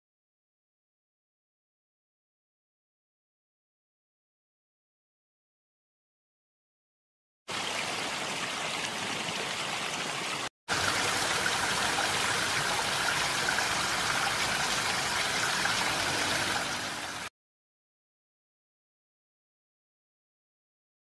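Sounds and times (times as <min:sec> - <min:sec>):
waterfall rushing: 0:07.5 - 0:17.3.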